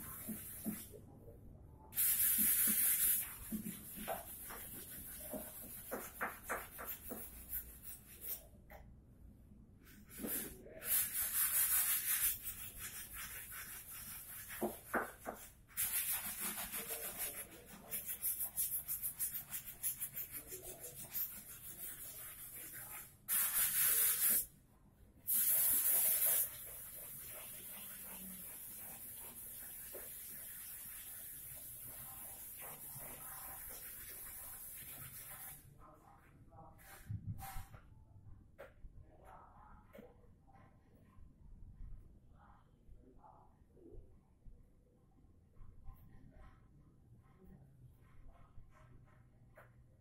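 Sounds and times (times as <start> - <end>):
sandpaper rubbing on wood: 10.2 - 24.4, 25.3 - 35.6.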